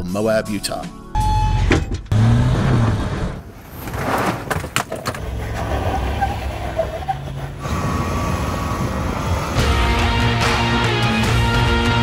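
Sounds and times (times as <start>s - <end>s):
engine revving: 2.1s - 3.4s, 5.2s - 12.0s.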